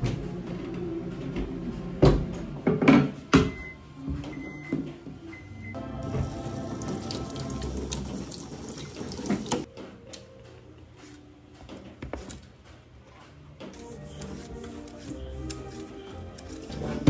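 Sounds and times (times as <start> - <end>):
tap water running into a sink: 6.0 - 9.7
potato peeling scrapes: 13.7 - 17.0.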